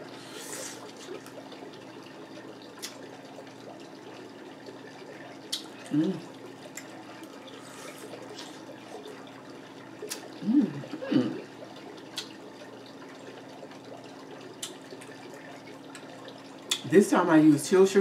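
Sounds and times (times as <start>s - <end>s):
background hiss and hum: 0.0s - 18.0s
closed-mouth hums: 5.0s - 12.5s.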